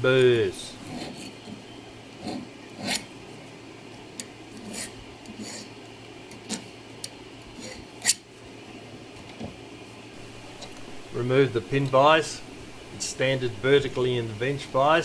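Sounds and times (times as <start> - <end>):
file strokes on steel pin: 2.2 - 3.1, 4.5 - 5.7.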